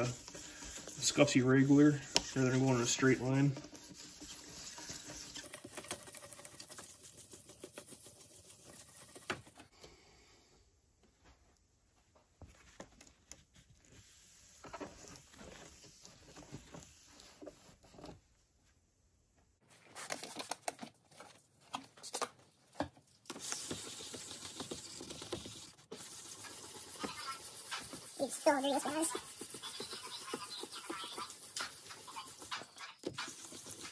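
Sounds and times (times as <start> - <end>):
wet sandpaper rubbing plastic: 0.0 - 9.6, 23.3 - 33.9.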